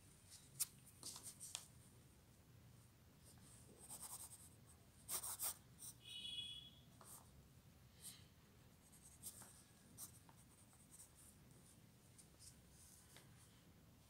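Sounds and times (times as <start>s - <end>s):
pencil scratching on paper: 3.8s - 6.0s.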